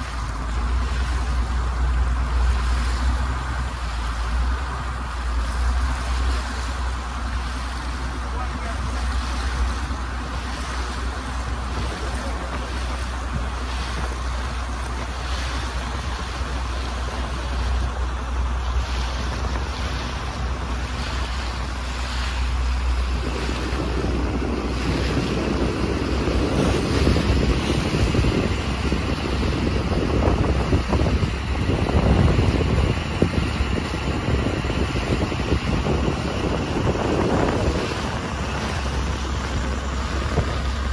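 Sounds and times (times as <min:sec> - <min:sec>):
boat engine drone: 0:00.0 - 0:40.9
rushing water: 0:00.0 - 0:40.9
wind buffeting microphone: 0:00.0 - 0:40.9.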